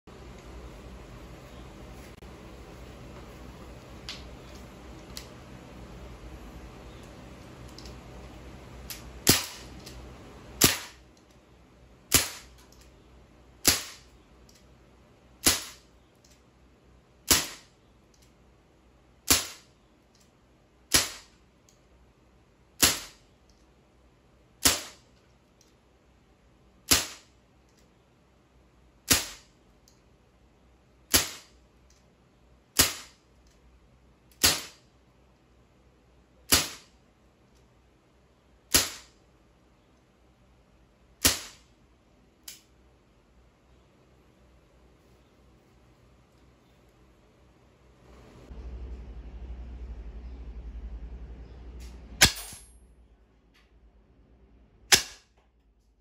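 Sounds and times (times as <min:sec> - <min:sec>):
air rifle shots: 0:09.2 - 0:09.8, 0:10.6 - 0:11.0, 0:12.1 - 0:12.6, 0:13.6 - 0:14.1, 0:15.4 - 0:15.8, 0:17.3 - 0:17.7, 0:19.3 - 0:19.7, 0:20.9 - 0:21.3, 0:22.8 - 0:23.2, 0:24.6 - 0:25.0, 0:26.9 - 0:27.3, 0:29.1 - 0:29.5, 0:31.1 - 0:31.6, 0:32.8 - 0:33.2, 0:34.4 - 0:34.8, 0:36.5 - 0:36.9, 0:38.7 - 0:39.2, 0:41.2 - 0:41.7, 0:54.9 - 0:55.3.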